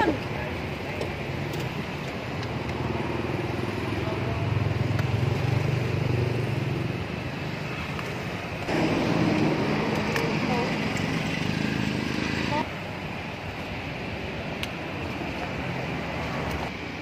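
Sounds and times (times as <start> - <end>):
vehicle engine passing: 8.7 - 12.6.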